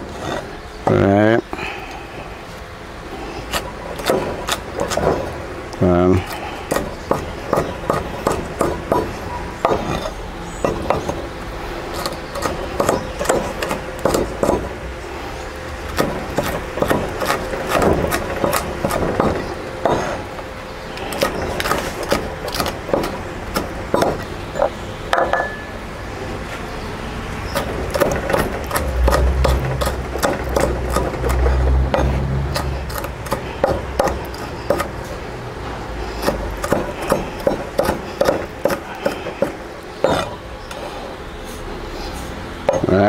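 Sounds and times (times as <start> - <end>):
knife chopping on wooden board: 3.6 - 5.2, 6.3 - 11.2, 15.9 - 20.2, 21.1 - 24.2, 27.6 - 34.9, 36.2 - 40.3.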